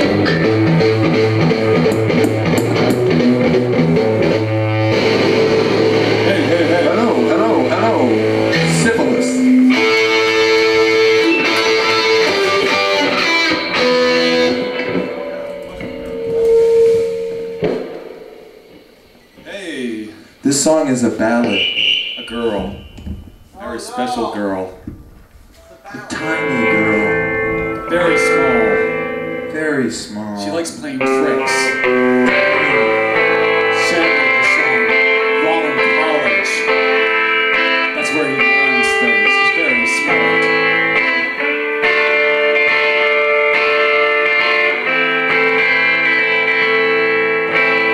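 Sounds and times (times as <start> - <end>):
live band guitar music: 0.0 - 19.6, 20.2 - 47.9
struck drum beat: 22.2 - 23.6, 24.7 - 25.6.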